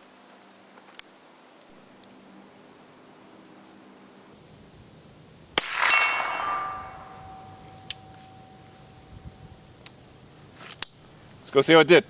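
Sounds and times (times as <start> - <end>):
rifle shot: 5.6 - 8.1
steel gong clanging and ringing: 5.8 - 8.6
light click: 7.8 - 8.3.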